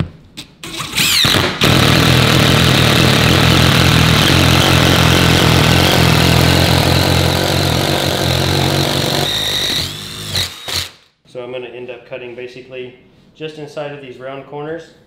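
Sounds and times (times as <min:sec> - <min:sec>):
power drill boring through countertop: 0:00.7 - 0:11.0.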